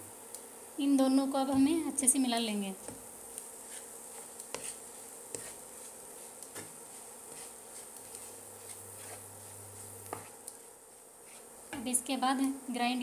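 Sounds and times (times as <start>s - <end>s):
faint buzzing hiss: 0.0s - 13.0s
wooden spatula scraping a pan: 2.8s - 11.9s.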